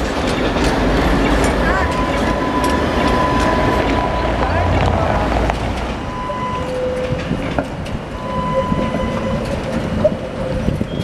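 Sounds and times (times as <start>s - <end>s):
tram low rumble: 0.0s - 11.0s
tram wheels clicking over rail joints: 0.0s - 11.0s.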